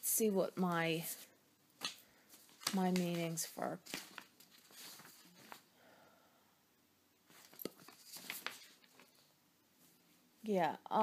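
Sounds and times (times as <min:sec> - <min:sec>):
faint rustles: 0:02.2 - 0:05.7.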